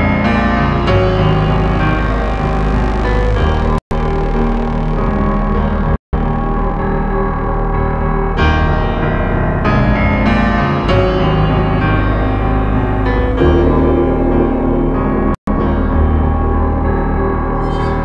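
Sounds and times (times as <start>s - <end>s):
piano background music: 0.0s - 18.0s.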